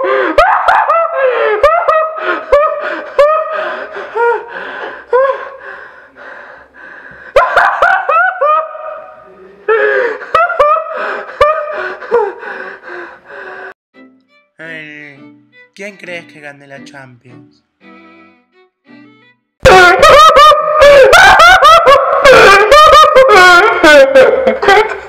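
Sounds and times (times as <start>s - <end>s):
man laughing hard: 0.0s - 3.6s, 9.7s - 12.4s, 19.7s - 25.0s
gasping breaths: 2.2s - 7.4s, 10.9s - 13.8s.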